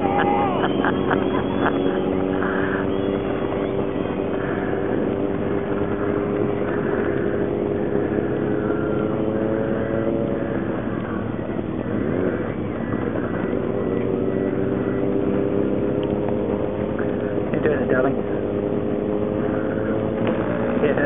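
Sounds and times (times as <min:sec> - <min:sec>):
engine running: 0:00.0 - 0:21.0.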